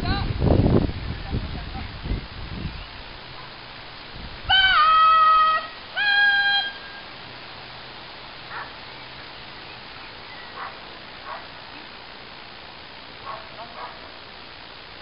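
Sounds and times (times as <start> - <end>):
person calling loudly: 4.5 - 7.0.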